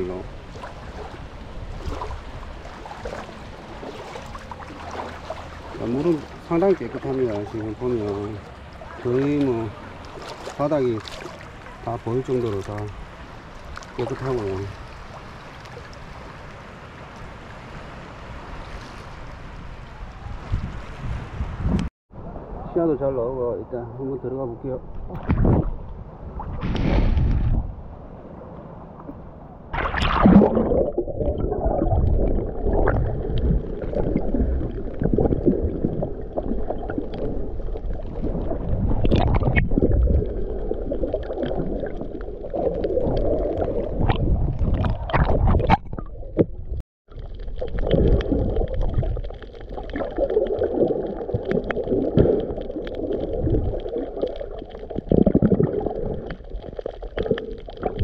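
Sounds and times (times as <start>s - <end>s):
water splash: 0.0s - 16.6s, 29.7s - 58.0s
underwater gurgling and sloshing: 0.0s - 17.5s, 25.0s - 58.0s.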